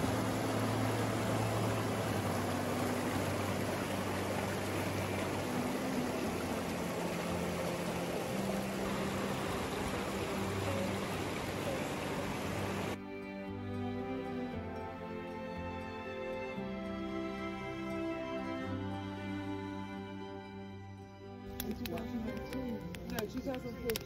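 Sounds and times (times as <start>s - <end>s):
stream rushing over boulders: 0.0s - 13.0s.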